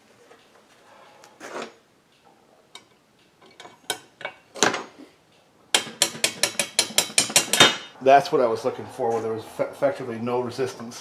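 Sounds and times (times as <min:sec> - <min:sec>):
metal clicks and knocks: 0:02.7 - 0:05.0, 0:05.7 - 0:07.9.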